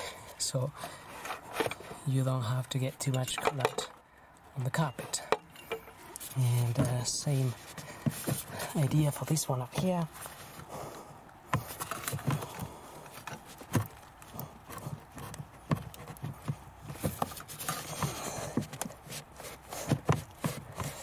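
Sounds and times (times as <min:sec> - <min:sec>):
knocks and clicks of pipe joint: 0:05.2 - 0:06.1.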